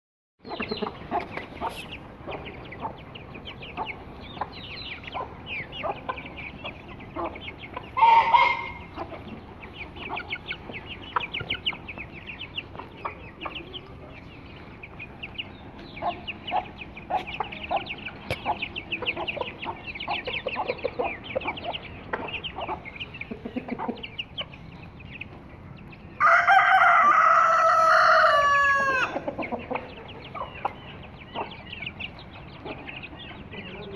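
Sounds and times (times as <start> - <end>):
chicks peeping: 0.4 - 33.9
hens clucking: 0.4 - 33.9
rooster crowing: 26.2 - 29.2.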